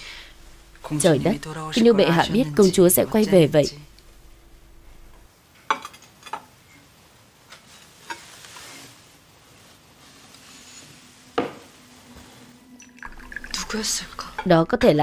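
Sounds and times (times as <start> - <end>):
soft rustle: 7.4 - 12.8.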